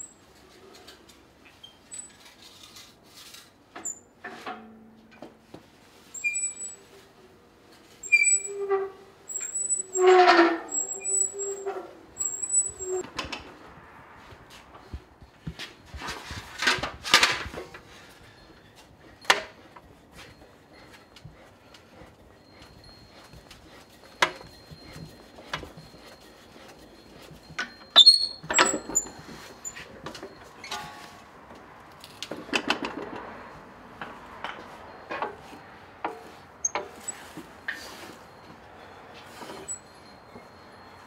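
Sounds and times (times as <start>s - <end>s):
metal rollers clicking and clanking: 7.7s - 13.6s, 15.6s - 31.4s.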